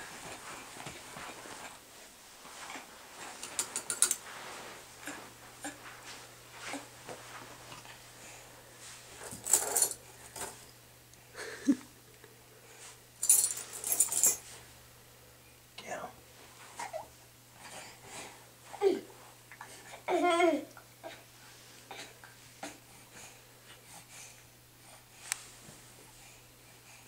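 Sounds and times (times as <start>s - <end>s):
keys jingling: 9.2s - 10.5s, 13.2s - 14.4s.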